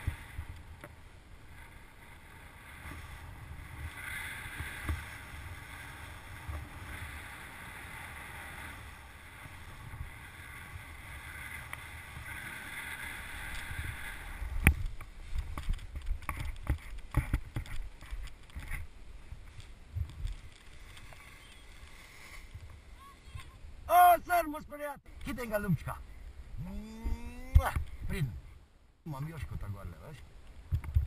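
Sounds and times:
wind rushing over microphone: 0:00.0 - 0:23.9.

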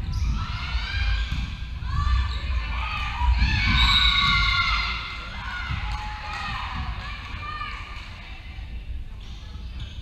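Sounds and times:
thuds of feet and ball: 0:03.4 - 0:04.7.

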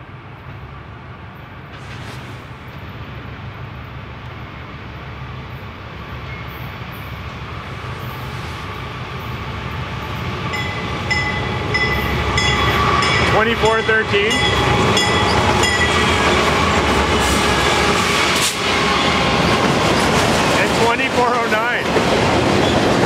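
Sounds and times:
diesel train rumbling on rails: 0:00.0 - 0:23.0
high ringing bell: 0:10.5 - 0:16.1.

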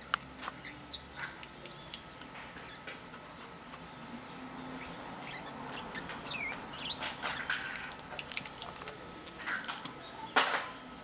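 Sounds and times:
budgerigars chirping: 0:04.6 - 0:07.2.

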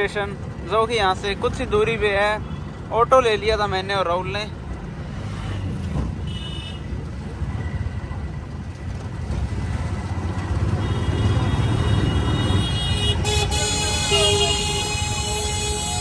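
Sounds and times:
auto rickshaw engine and road rumble: 0:00.0 - 0:16.0.

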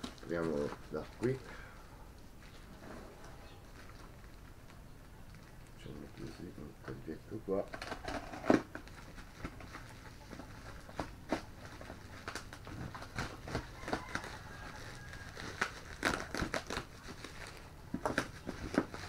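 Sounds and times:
packaging crinkling and rustling: 0:00.0 - 0:01.4, 0:03.5 - 0:06.6, 0:07.6 - 0:19.0
sharp crackles: 0:03.2 - 0:06.7, 0:07.5 - 0:19.0.

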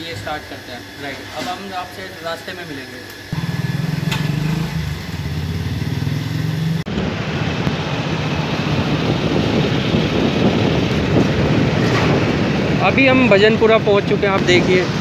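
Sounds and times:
motorcycle engine running: 0:03.3 - 0:15.0
road noise: 0:03.3 - 0:15.0
wind rushing on microphone: 0:06.9 - 0:15.0.

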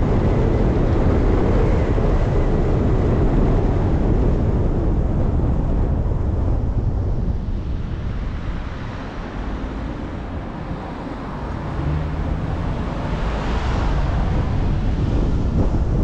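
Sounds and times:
road traffic rumble: 0:00.0 - 0:16.0
wind buffeting microphone: 0:00.0 - 0:16.0
vehicle passing: 0:08.6 - 0:16.0.

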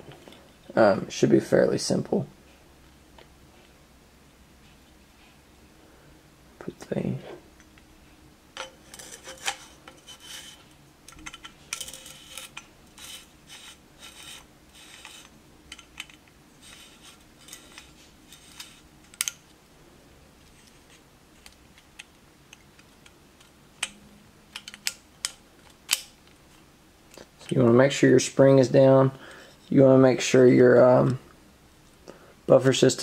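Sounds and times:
clicks and scrapes of gun parts: 0:08.6 - 0:19.5.

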